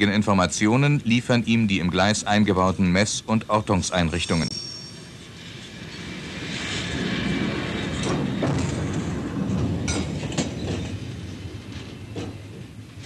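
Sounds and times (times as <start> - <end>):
steel wheels rolling on rails: 4.0 - 13.0
axles clacking over rail joints: 9.6 - 12.8.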